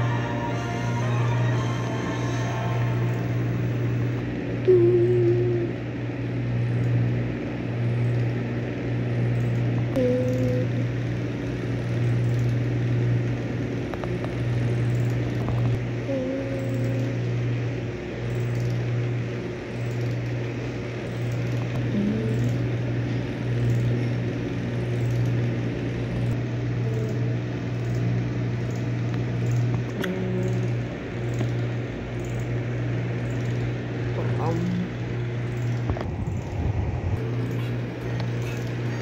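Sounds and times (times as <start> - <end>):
low mechanical hum: 0.0 - 39.0.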